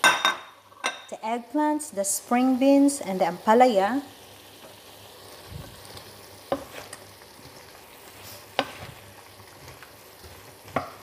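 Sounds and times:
vegetables sizzling in pan: 0.0 - 11.0
wooden spatula knocking pan: 10.7 - 11.0.

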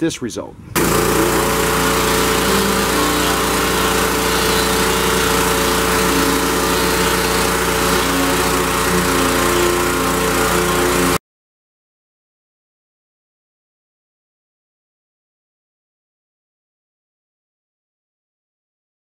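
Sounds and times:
pressure washer engine running: 0.8 - 11.2
water spraying onto boards: 0.8 - 11.2.

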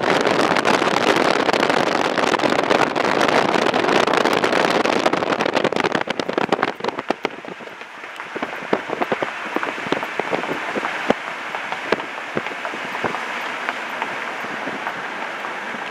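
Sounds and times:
car tyres crunching gravel: 0.0 - 15.9.

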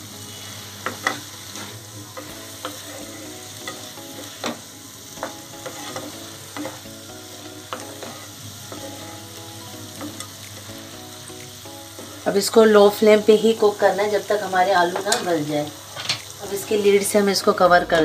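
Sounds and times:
vegetables sizzling in oil: 0.0 - 18.0
wooden spatula scraping pan: 5.2 - 6.8, 7.7 - 9.1.

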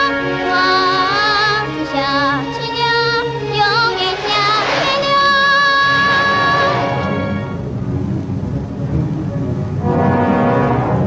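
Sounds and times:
high singing voice with vibrato: 0.0 - 7.2
instrumental backing music: 0.0 - 11.0.

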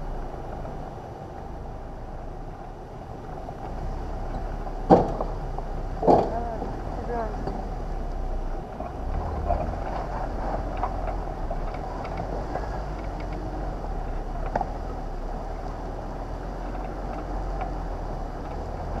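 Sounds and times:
engine and tyre rumble: 0.0 - 19.0
knocks and rattles: 4.3 - 7.7.

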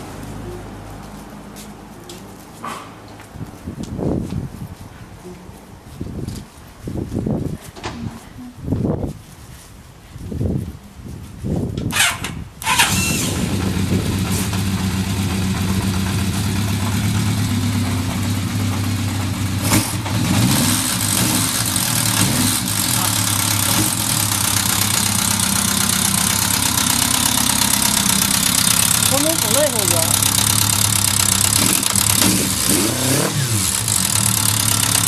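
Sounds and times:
motorcycle engine idling: 13.3 - 32.6, 33.5 - 35.0.

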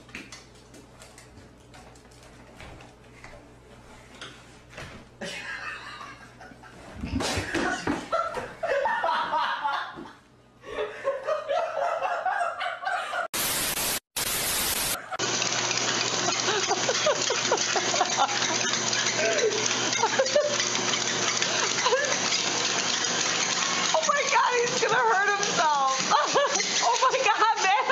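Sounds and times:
people laughing: 5.2 - 13.3, 16.3 - 20.6, 25.8 - 27.9
loud hiss bursts: 13.4 - 15.0.

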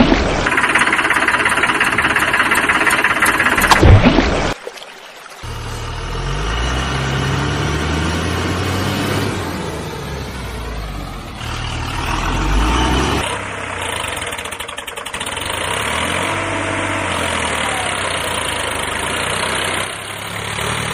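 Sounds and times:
fast engine rattling: 0.0 - 4.0, 5.4 - 20.9
heavy diesel engine idling: 0.4 - 3.8, 9.6 - 20.9.

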